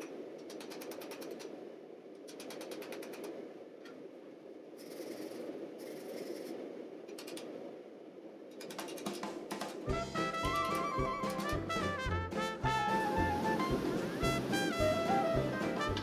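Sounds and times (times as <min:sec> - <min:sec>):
low rumble: 0:09.9 - 0:16.0.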